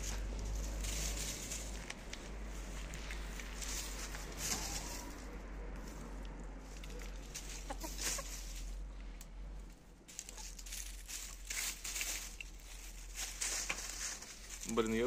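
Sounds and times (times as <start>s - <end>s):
hens scratching in leaf litter: 0.0s - 15.0s
hens clucking: 6.6s - 8.9s.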